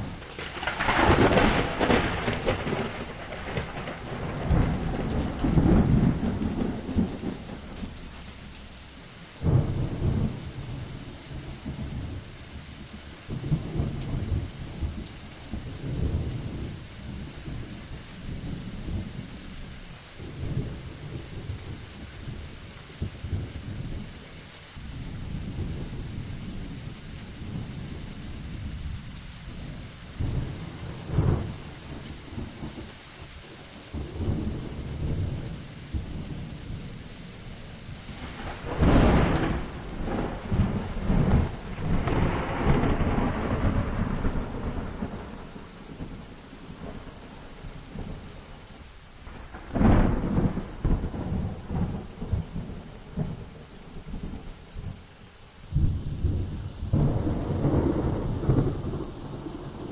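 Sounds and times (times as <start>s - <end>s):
thunderclaps: 0.0s - 12.2s, 27.5s - 32.9s, 33.9s - 36.9s, 37.9s - 48.2s, 49.2s - 55.0s, 55.7s - 59.9s
rolling thunder: 0.0s - 12.3s, 24.8s - 48.5s, 49.2s - 55.0s, 55.7s - 59.9s
steady rain: 0.0s - 59.9s.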